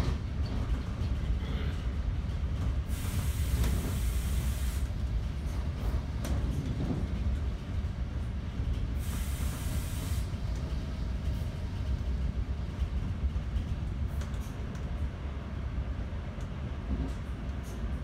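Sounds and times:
train rumbling on rails: 0:00.0 - 0:18.0
short hiss burst: 0:02.9 - 0:04.9, 0:09.0 - 0:10.3.

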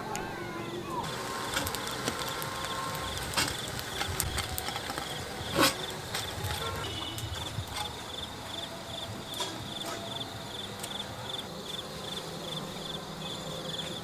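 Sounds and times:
insects chirping: 0:00.4 - 0:14.0.

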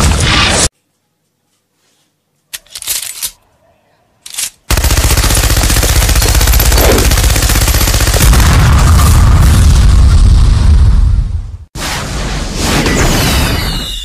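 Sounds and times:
machine gun firing: 0:04.7 - 0:09.2.

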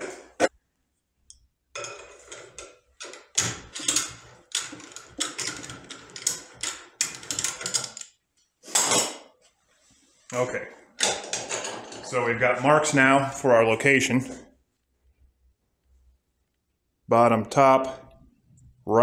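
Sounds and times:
metallic clicks and rattles: 0:01.8 - 0:08.2.

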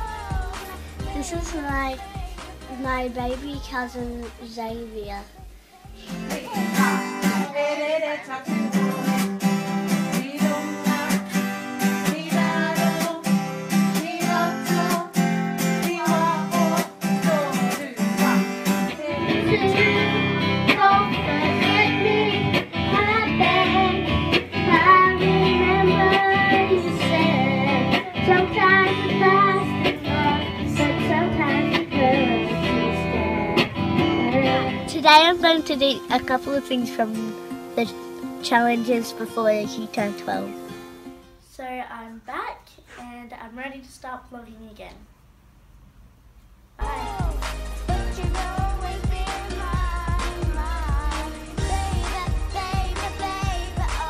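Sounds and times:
children singing: 0:00.0 - 0:03.4, 0:05.9 - 0:09.3, 0:15.8 - 0:34.9, 0:46.8 - 0:54.0
girl singing into microphone: 0:00.0 - 0:40.7, 0:46.8 - 0:54.0
acoustic guitar strumming: 0:00.0 - 0:41.4
electric guitar: 0:05.5 - 0:41.3.

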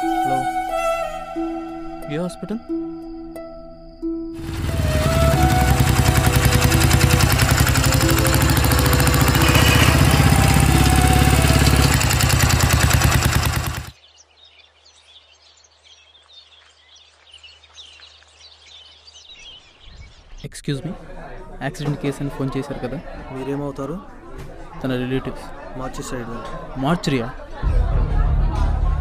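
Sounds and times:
motorcycle engine running: 0:04.4 - 0:14.0.

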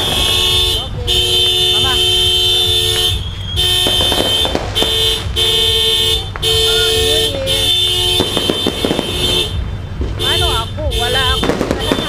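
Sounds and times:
firecracker pops: 0:00.0 - 0:00.9, 0:02.8 - 0:07.0, 0:08.0 - 0:10.3, 0:11.4 - 0:12.0
two-note car horn honking: 0:00.0 - 0:12.0.

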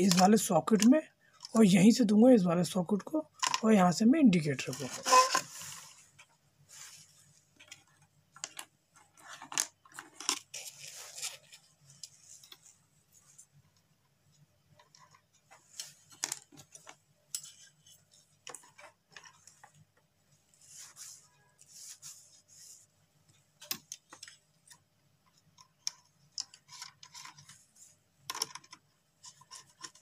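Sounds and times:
clicks and taps handling wire: 0:07.5 - 0:10.4, 0:13.3 - 0:20.1, 0:23.2 - 0:27.6, 0:28.2 - 0:30.0.

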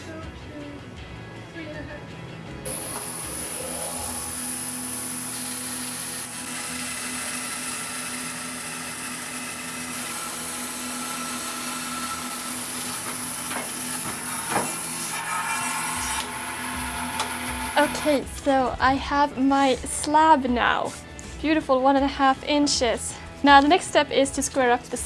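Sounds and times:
bandsaw motor hum: 0:02.7 - 0:18.2
blade cutting wood: 0:02.7 - 0:18.2.

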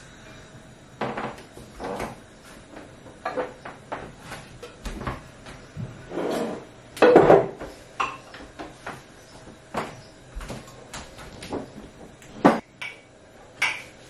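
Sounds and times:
dishes clattering: 0:06.2 - 0:08.8.

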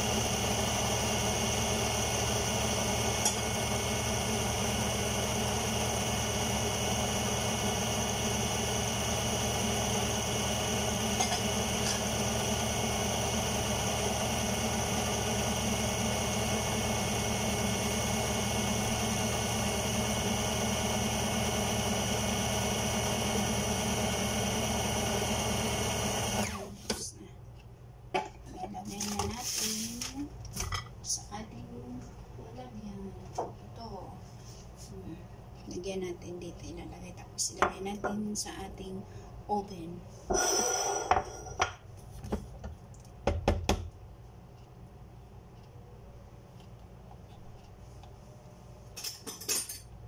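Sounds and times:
food processor motor running: 0:00.0 - 0:26.8.

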